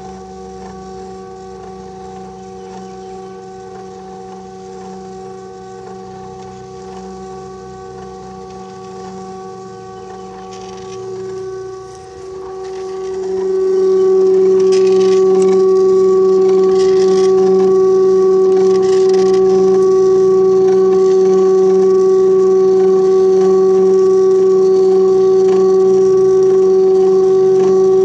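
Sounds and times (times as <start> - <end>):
stepper motor whine: 0.0 - 28.0.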